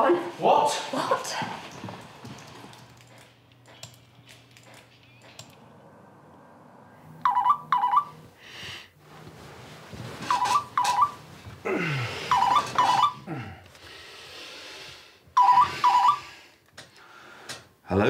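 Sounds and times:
mobile phone ringtone: 7.2 - 8.2, 10.3 - 11.2, 12.3 - 13.2, 15.4 - 16.3
man groaning: 11.6 - 12.2, 13.2 - 13.6.

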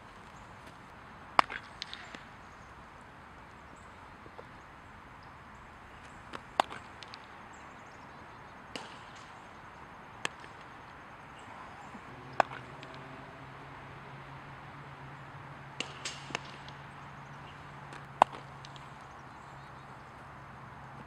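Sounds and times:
bat hitting baseball: 1.4 - 2.2, 6.3 - 7.4, 8.7 - 9.4, 10.2 - 10.8, 11.4 - 14.3, 15.5 - 19.1
ball smacking into glove: 6.3 - 7.3, 11.5 - 13.6, 15.8 - 16.8, 17.9 - 19.0.

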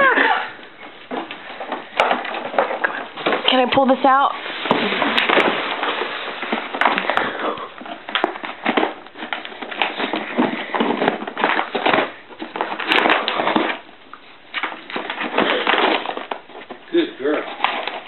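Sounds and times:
dog tearing at cardboard box: 4.5 - 18.0.

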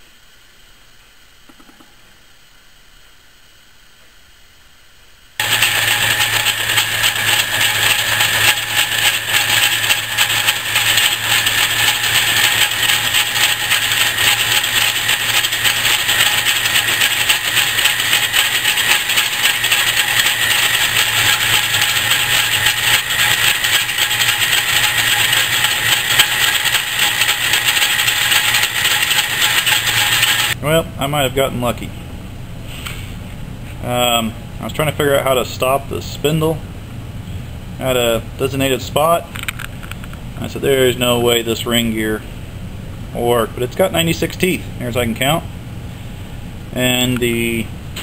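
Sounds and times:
metal lathe cutting steel: 5.4 - 30.6.

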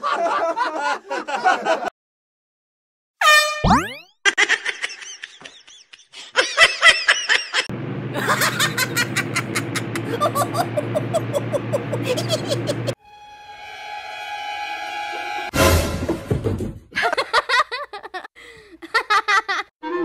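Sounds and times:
person giggling: 4.4 - 13.0, 17.0 - 20.0
person laughing squealing: 10.0 - 13.0.

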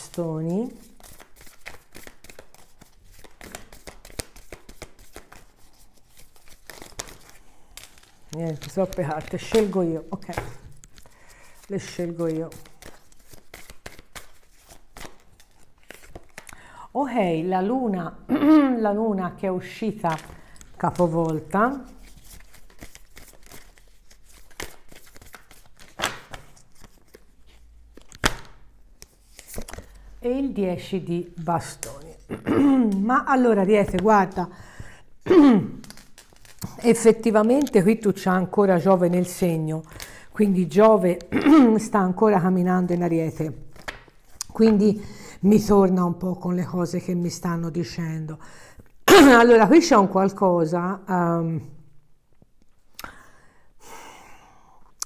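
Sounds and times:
cards being shuffled: 0.0 - 16.6, 20.0 - 30.1, 35.8 - 38.0, 43.6 - 44.9.

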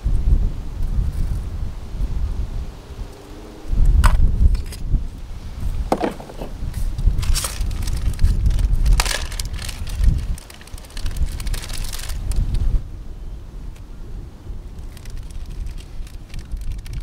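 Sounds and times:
wind buffeting microphone: 0.0 - 17.0
sharp crunching snaps: 5.9 - 12.6, 14.7 - 17.0.

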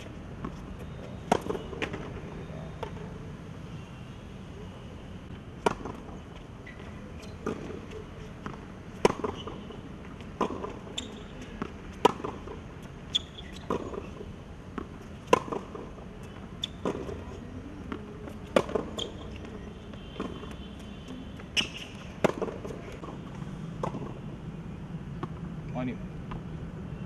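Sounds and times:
tennis ball bouncing on court: 0.0 - 2.1, 5.6 - 23.2, 23.8 - 24.2, 25.2 - 25.5
tennis ball hit with racket: 5.6 - 6.2, 7.3 - 14.0, 14.7 - 19.6, 20.2 - 23.2, 23.8 - 24.2.

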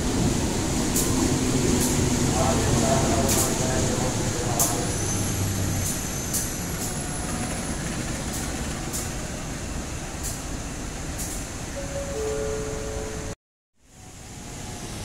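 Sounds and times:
passenger train rumbling past: 0.0 - 15.0
high wheel squeal: 4.8 - 7.9.

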